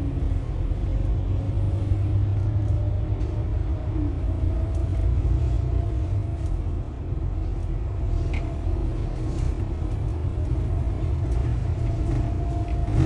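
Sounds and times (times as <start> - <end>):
bus engine and tyres rumbling: 0.0 - 13.0.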